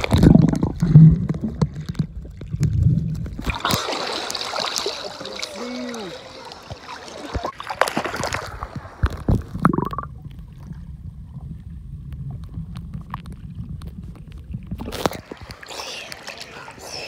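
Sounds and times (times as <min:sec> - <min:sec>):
underwater low rumble: 0:00.0 - 0:03.6, 0:08.2 - 0:15.6
water splashing: 0:00.0 - 0:11.6, 0:12.3 - 0:17.0
bubbly gurgle: 0:00.0 - 0:16.6
faint underwater clicks: 0:06.5 - 0:17.0.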